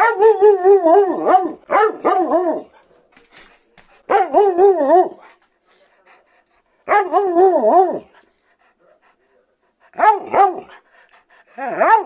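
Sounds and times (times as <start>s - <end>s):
husky howling and grumbling: 6.9s - 8.1s.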